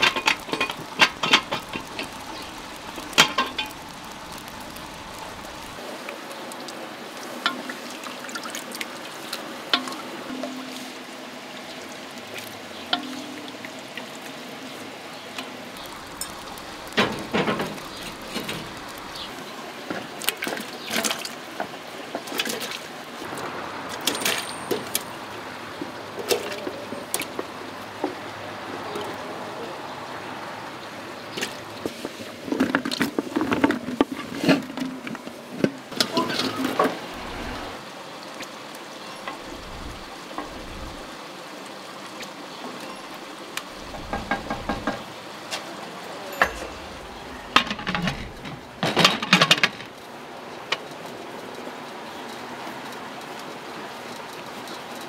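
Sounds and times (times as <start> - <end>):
wooden spoon stirring pot: 0.0 - 5.8, 43.8 - 45.0.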